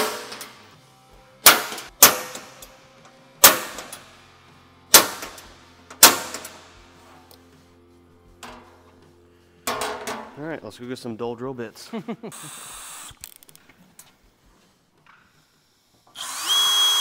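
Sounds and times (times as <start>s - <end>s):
loud metallic clangs: 0.0s - 0.6s, 1.4s - 2.7s, 3.4s - 4.0s, 4.9s - 6.6s, 9.7s - 10.4s.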